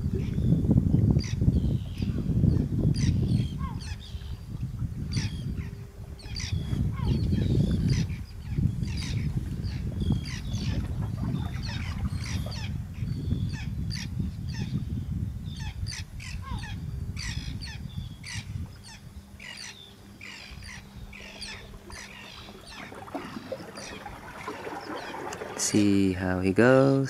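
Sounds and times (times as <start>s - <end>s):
birds calling: 0.0s - 27.0s.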